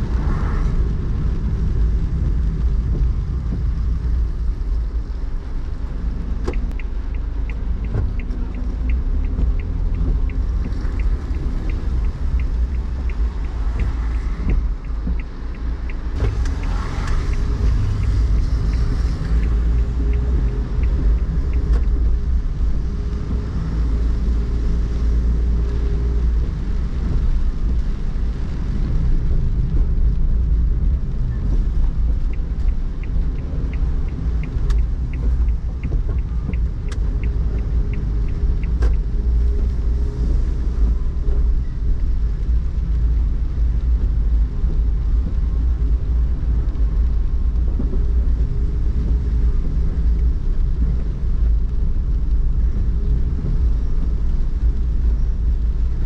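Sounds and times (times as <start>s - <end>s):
car road rumble: 0.0s - 56.0s
turn signal ticking: 0.0s - 56.0s.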